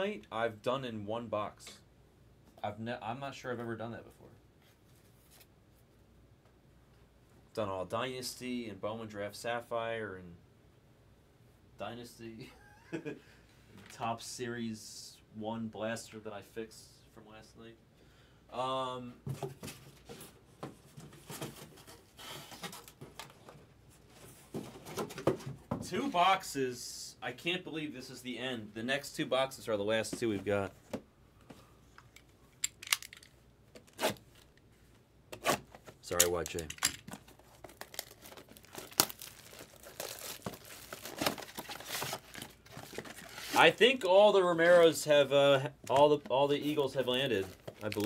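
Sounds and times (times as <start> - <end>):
objects handled on a table: 30.1 - 43.6
foil wrapper crinkling and tearing: 37.2 - 43.6, 47.5 - 48.0.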